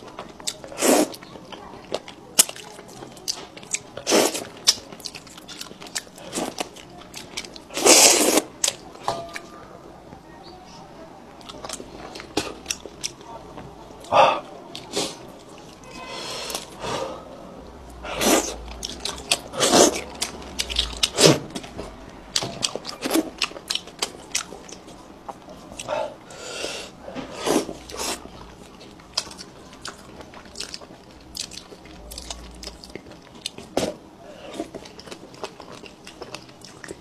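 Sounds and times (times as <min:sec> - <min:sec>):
chewing and crunching fish: 0:00.0 - 0:09.0, 0:18.0 - 0:26.0, 0:27.8 - 0:37.0.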